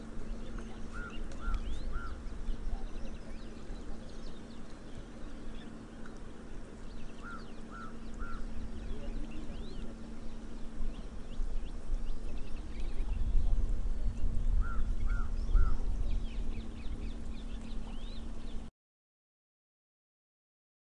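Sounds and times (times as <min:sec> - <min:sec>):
low rumble: 0:00.0 - 0:18.7
steady low hum: 0:00.0 - 0:18.7
faint high bird chirps: 0:00.2 - 0:06.1, 0:06.8 - 0:18.7
bird three-note call: 0:07.1 - 0:10.6.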